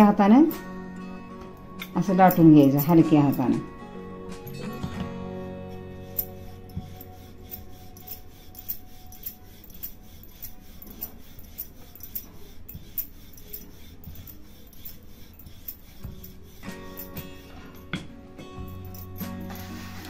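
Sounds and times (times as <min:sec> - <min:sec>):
rolling pin rubbing on dough: 0:05.7 - 0:18.1.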